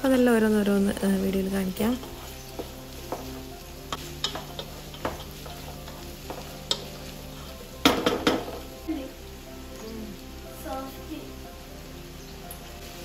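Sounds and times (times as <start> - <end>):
rice sizzling: 0.0 - 13.0
knocks against a pot: 7.8 - 8.6.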